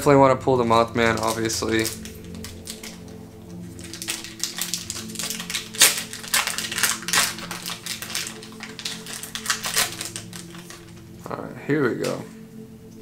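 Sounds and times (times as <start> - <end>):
foil wrapper tearing and crinkling: 1.0 - 11.0.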